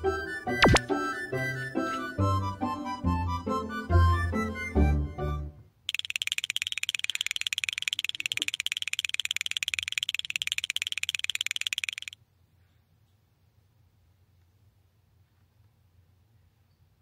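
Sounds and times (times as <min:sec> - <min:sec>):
high-pitched pulsing trill: 0:00.6 - 0:00.8, 0:05.9 - 0:12.2.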